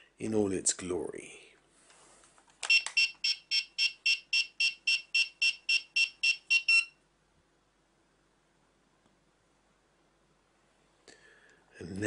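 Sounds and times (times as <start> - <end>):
short high electronic beeps: 2.7 - 6.9.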